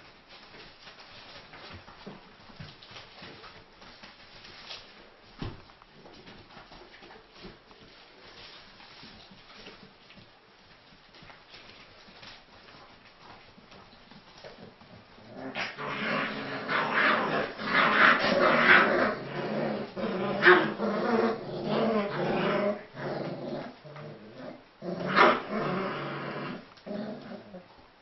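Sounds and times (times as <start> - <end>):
puppies growling: 14.4 - 27.8.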